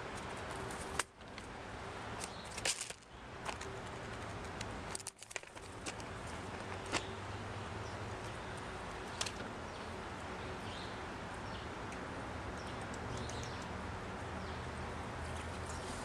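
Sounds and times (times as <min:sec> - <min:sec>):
outdoor background noise: 0:00.0 - 0:16.0
birds clicking on plastic feeder: 0:02.2 - 0:07.2, 0:11.4 - 0:14.5.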